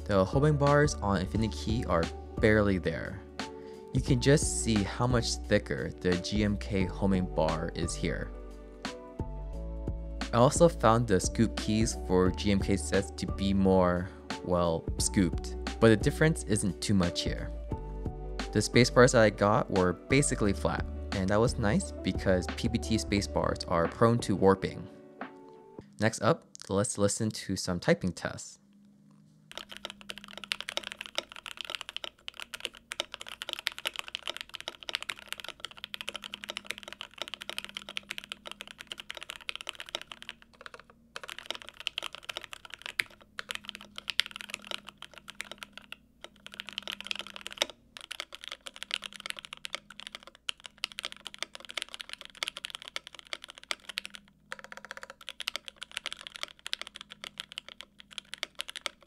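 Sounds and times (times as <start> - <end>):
fast mechanical keyboard typing: 29.5 - 59.0.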